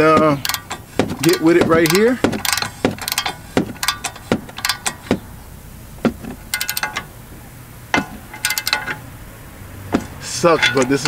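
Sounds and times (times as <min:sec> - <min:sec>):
hand tools clinking on steel: 0:00.0 - 0:05.2, 0:06.1 - 0:07.2, 0:07.9 - 0:09.1, 0:10.0 - 0:11.0.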